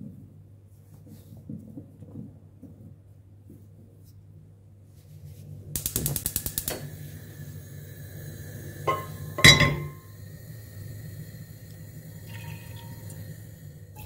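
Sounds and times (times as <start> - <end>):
gas hob igniter clicking: 5.8 - 10.2
low steady hum: 6.7 - 14.0
pot clanking on metal grate: 8.9 - 10.0.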